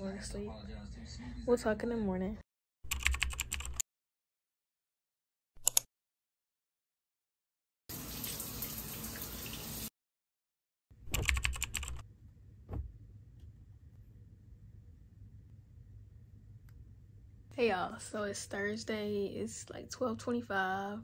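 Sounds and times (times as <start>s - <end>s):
keyboard typing clicks: 2.9s - 3.8s, 5.6s - 5.9s, 11.1s - 12.0s
shower spraying water: 7.9s - 9.9s.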